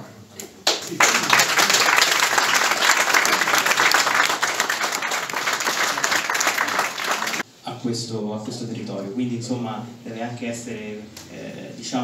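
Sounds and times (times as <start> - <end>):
audience applause: 0.6 - 7.4.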